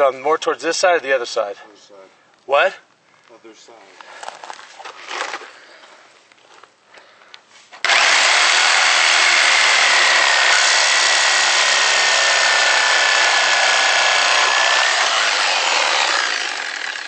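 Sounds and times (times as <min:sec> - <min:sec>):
reciprocating saw cutting metal: 0:07.8 - 0:17.0.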